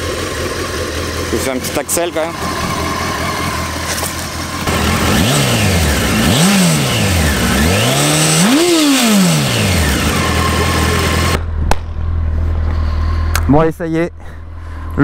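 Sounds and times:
motorcycle engine idling and revving: 0.0s - 15.0s.

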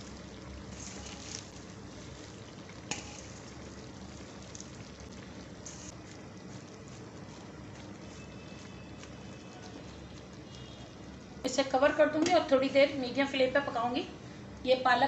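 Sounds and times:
spinach rustling: 0.0s - 11.2s
curry bubbling in a pan: 0.0s - 12.2s.

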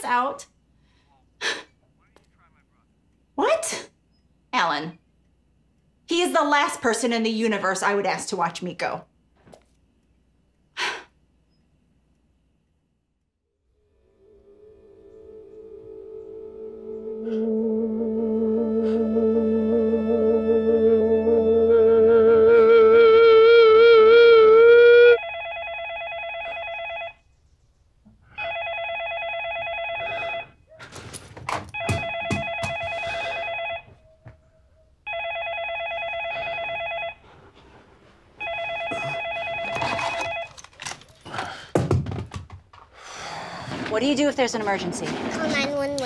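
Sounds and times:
wavering film score tones: 13.7s - 25.2s
cordless telephone ringing: 25.2s - 27.2s, 28.4s - 30.6s, 31.8s - 33.9s, 35.1s - 37.2s, 38.4s - 40.8s
knocks: 31.5s - 32.9s, 41.7s - 42.8s.

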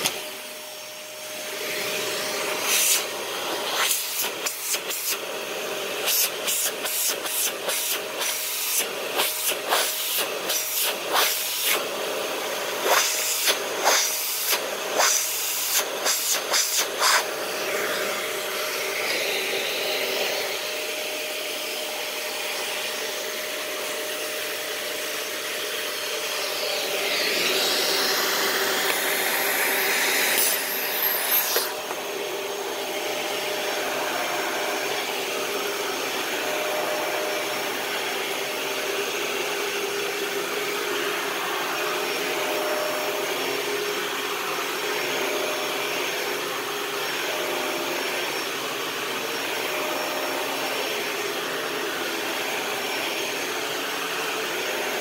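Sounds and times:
vacuum cleaner running: 0.0s - 55.0s.

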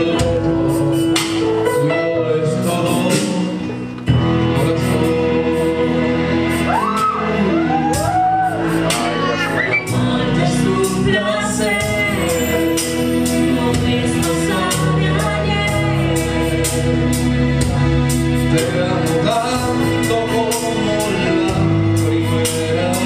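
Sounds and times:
live band playing: 0.0s - 23.0s
man singing: 0.0s - 23.0s
woman singing: 8.8s - 16.6s.

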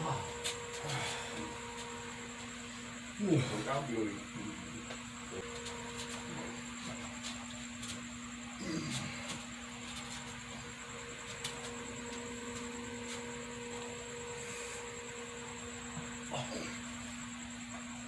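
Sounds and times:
electric fan humming: 0.0s - 18.0s.

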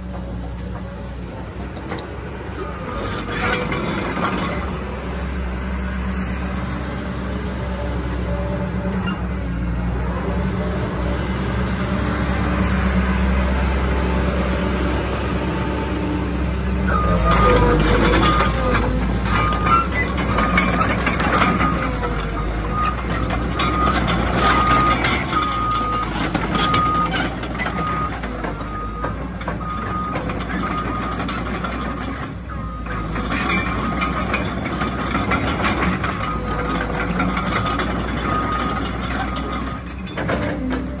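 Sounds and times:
excavator diesel engine running: 0.0s - 41.0s
undercarriage clanks: 33.1s - 41.0s.

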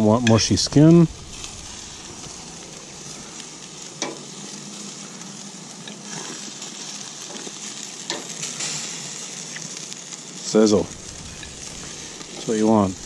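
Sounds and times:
chicken wings sizzling on grill: 0.0s - 13.0s
metal tongs clicking on grate: 8.1s - 8.3s.

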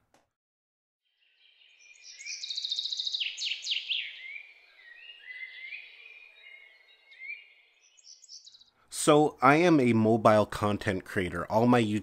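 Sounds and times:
birds chirping: 1.1s - 9.2s
faint outdoor hiss: 1.6s - 12.0s.

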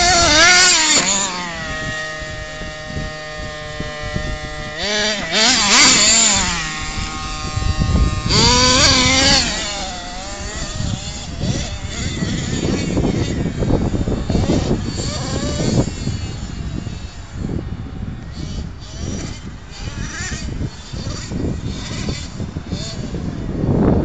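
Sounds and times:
model truck engine revving: 0.0s - 23.9s.

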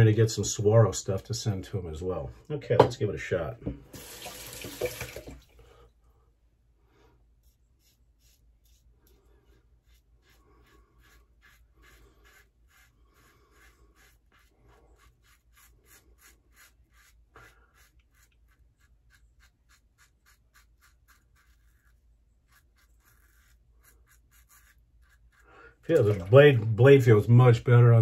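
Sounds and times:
razor scratching stubble: 7.4s - 26.4s.

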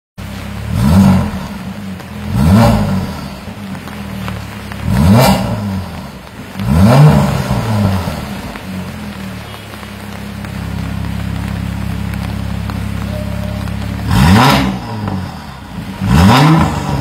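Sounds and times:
car engine idling: 0.2s - 17.0s
car engine revving blips: 0.2s - 17.0s.

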